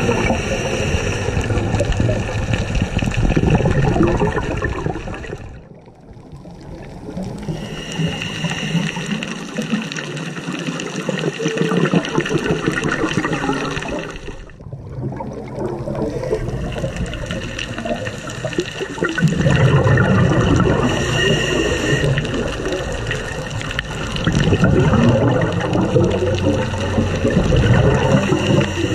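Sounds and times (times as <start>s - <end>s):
bubbling exhaled air: 0.0s - 28.9s
scuba regulator hissing: 20.7s - 22.7s.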